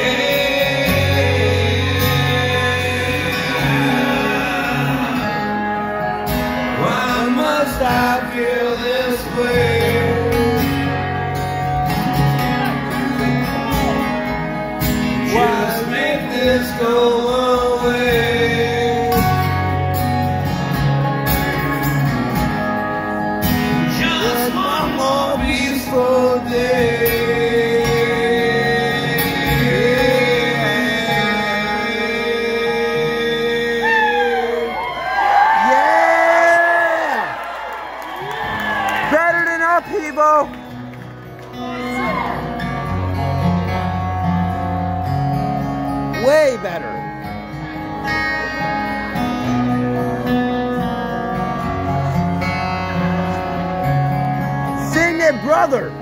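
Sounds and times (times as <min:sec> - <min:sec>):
man singing: 0:00.0 - 0:14.2, 0:15.1 - 0:20.4, 0:23.7 - 0:34.9
acoustic guitars strummed and picked: 0:00.0 - 0:56.0.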